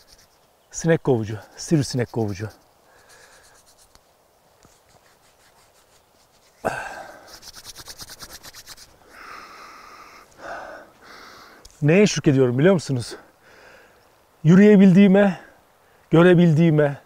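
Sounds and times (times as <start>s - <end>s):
palms rasping rub: 0.0s - 9.2s.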